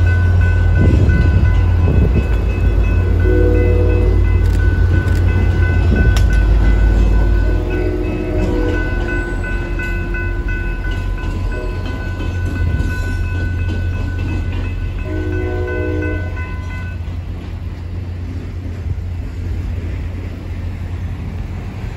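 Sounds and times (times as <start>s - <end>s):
crossing warning bell ringing: 0.0s - 17.5s
diesel locomotive engine rumble: 0.0s - 21.9s
locomotive horn chord: 2.9s - 5.0s, 7.1s - 9.5s, 15.0s - 16.8s.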